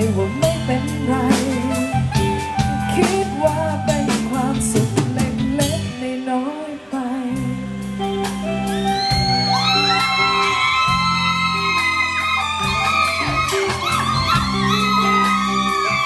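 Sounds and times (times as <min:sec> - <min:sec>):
woman singing: 0:00.0 - 0:07.9
live pop band playing: 0:00.0 - 0:16.0
sliding guitar notes: 0:00.0 - 0:16.0
drums pounding: 0:01.3 - 0:06.0, 0:08.3 - 0:16.0.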